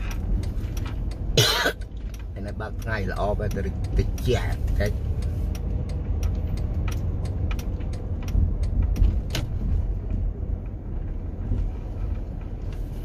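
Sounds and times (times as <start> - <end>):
light clicks and rattles: 0.0 - 13.0
moving vehicle rumble: 0.0 - 13.0.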